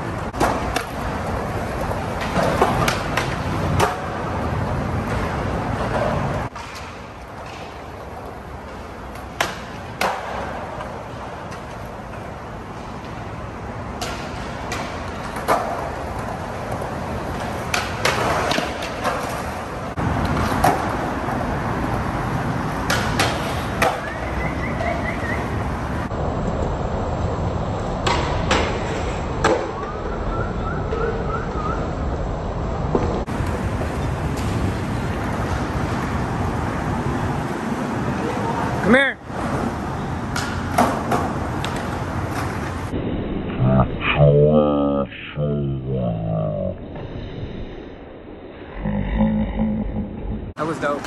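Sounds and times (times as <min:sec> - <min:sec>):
skateboards clacking: 0:00.0 - 0:26.6, 0:27.8 - 0:30.0, 0:32.8 - 0:42.9
skateboard wheels rolling on concrete: 0:00.0 - 0:43.6, 0:50.6 - 0:51.0.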